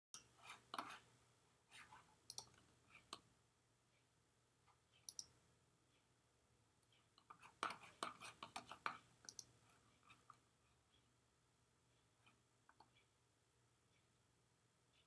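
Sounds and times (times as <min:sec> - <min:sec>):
faint clicks: 0:02.3 - 0:03.2.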